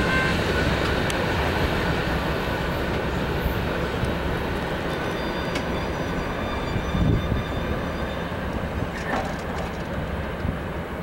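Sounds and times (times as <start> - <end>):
freight train wheels rumbling: 0.0 - 11.0
faint high squeal: 4.9 - 9.3.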